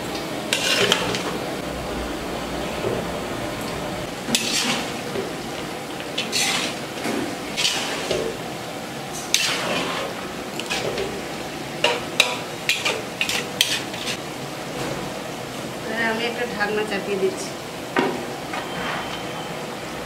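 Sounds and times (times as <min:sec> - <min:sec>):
spatula scraping a pan: 0:00.5 - 0:01.4, 0:04.3 - 0:05.4, 0:06.0 - 0:08.4, 0:09.1 - 0:11.2, 0:11.8 - 0:14.2.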